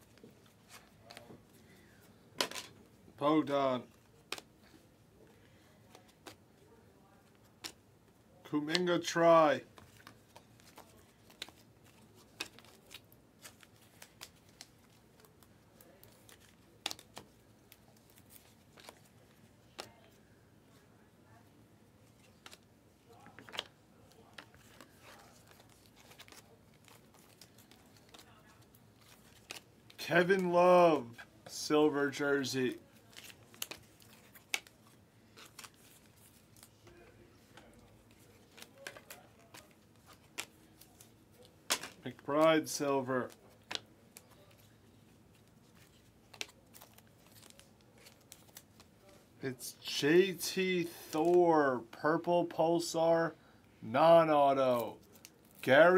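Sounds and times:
trading cards flipped by hand: 4.1 - 4.5, 9.7 - 19.1, 22.1 - 30.5, 33.0 - 44.7, 45.3 - 49.2.

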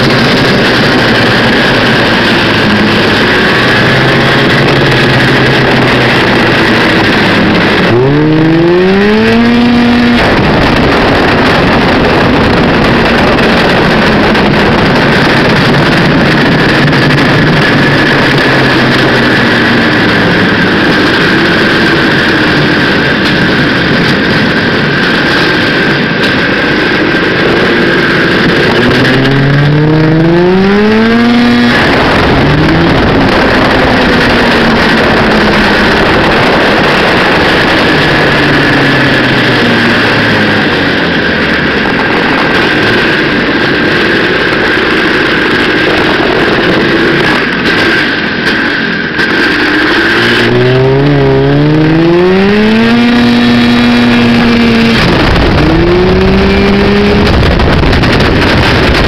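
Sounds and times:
snowmobile engine revving: 0.0 - 59.0.

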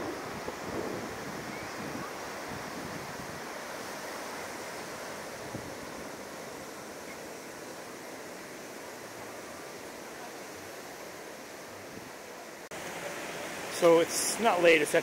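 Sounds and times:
wind on microphone: 0.0 - 6.5
ocean surf breaking: 0.0 - 12.1, 12.7 - 15.0.

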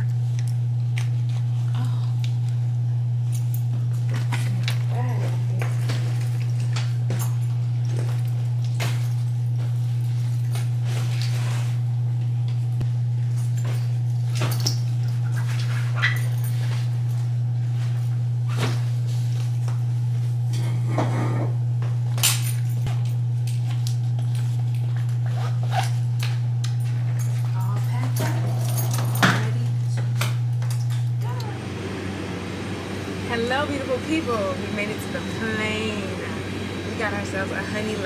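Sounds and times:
low hum: 25.3 - 38.0.

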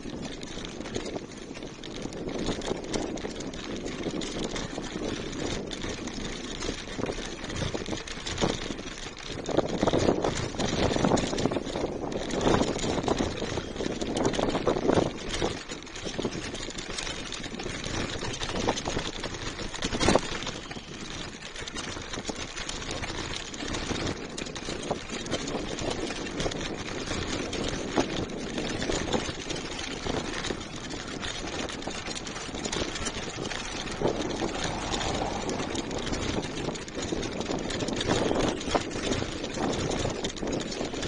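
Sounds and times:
bicycle rattling over cobblestones: 0.0 - 41.0.

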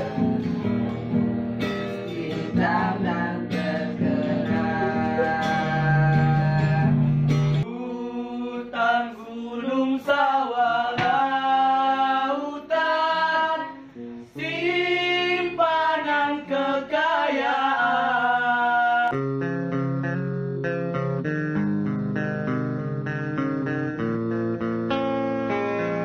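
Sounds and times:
strummed acoustic guitar: 0.0 - 7.6, 18.0 - 26.0
young voices singing together: 0.0 - 19.2.

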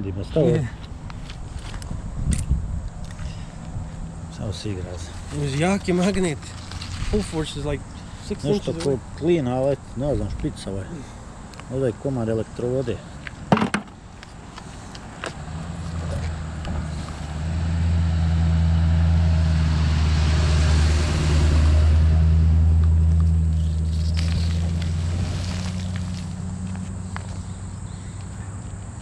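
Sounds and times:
vehicle engine passing: 15.2 - 29.0.

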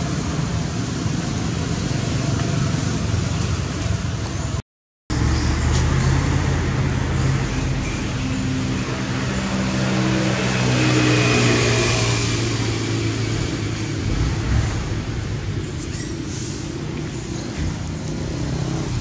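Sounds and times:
road noise: 0.0 - 19.0.

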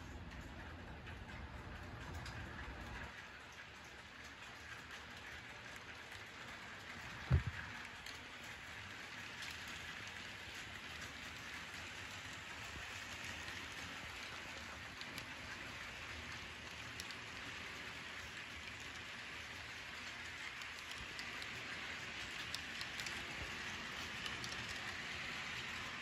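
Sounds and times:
model train rolling on track: 0.0 - 26.0
faint clicks: 9.2 - 25.8.

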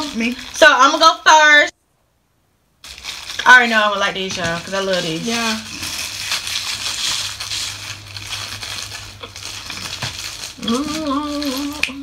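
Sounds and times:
plastic wrappers crinkling: 0.0 - 1.6, 2.8 - 12.0
person humming: 10.6 - 12.0.

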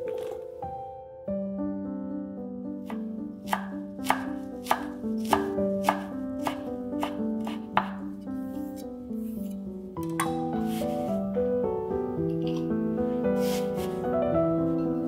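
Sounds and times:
background music: 0.0 - 15.0
knife chopping on wooden board: 2.9 - 8.1.

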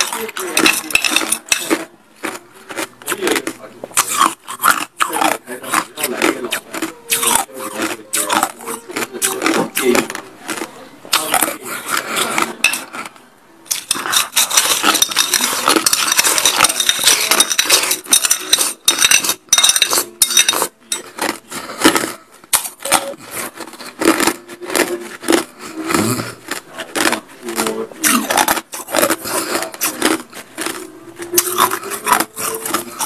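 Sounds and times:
ice crunching while chewed: 0.0 - 33.0
metal spoon clinking in bowl: 13.7 - 21.1.

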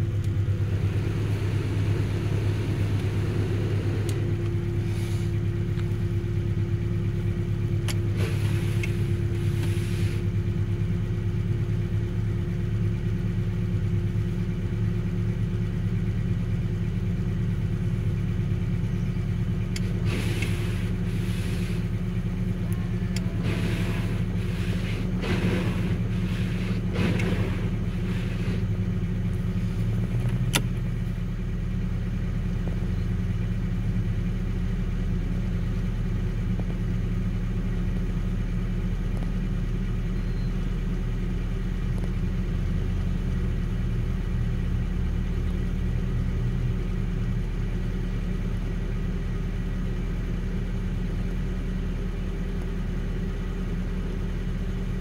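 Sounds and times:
vehicle engine idling: 0.0 - 55.0
sharp click: 30.2 - 30.8.

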